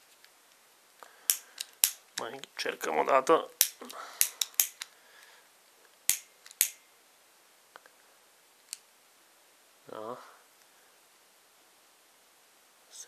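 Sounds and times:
torch igniter clicking: 6.1s - 6.8s.

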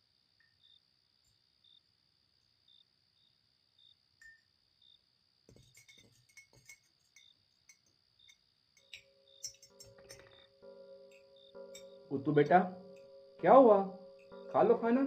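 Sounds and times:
crickets chirping: 0.0s - 15.0s
spoons clinking on plates and bowls: 5.5s - 10.4s.

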